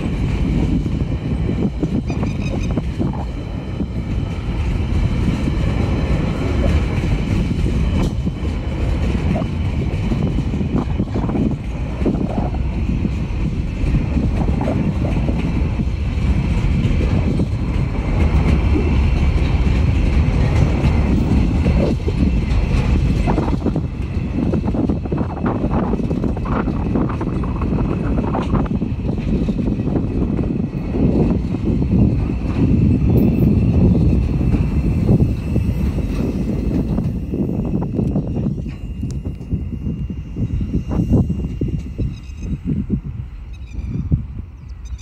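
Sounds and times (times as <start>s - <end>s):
train wheels rumbling on rails: 0.0s - 45.0s.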